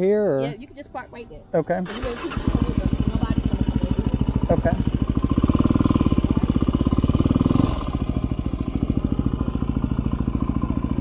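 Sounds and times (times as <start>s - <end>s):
motorcycle engine chugging: 1.8s - 11.0s.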